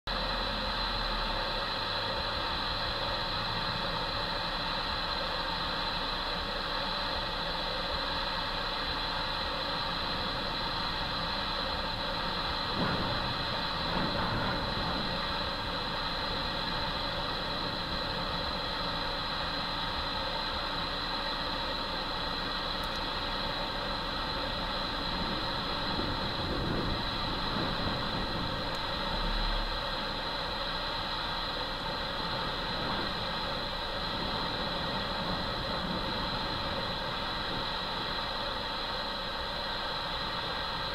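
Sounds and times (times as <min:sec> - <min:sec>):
jet engines whining: 0:08.1 - 0:40.9.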